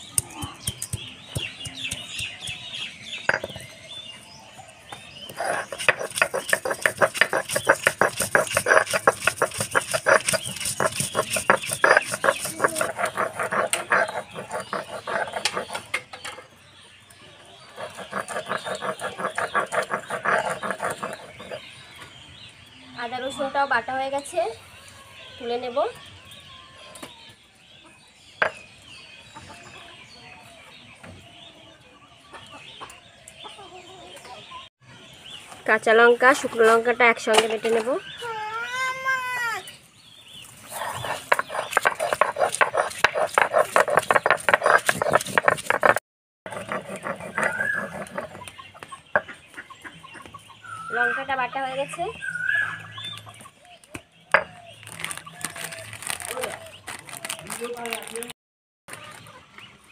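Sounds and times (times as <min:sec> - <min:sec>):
stone roller crushing on stone: 0:00.2 - 0:03.7, 0:05.3 - 0:16.1, 0:17.8 - 0:21.6, 0:40.7 - 0:48.5
chickens clucking: 0:05.2 - 0:16.8, 0:17.4 - 0:22.1, 0:29.2 - 0:34.7, 0:40.4 - 0:52.1, 0:52.8 - 0:55.4.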